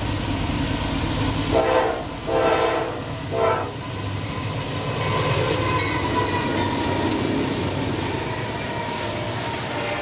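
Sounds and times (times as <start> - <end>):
freight train passing: 0.0 - 10.0
steel wheels rolling on rails: 3.1 - 10.0.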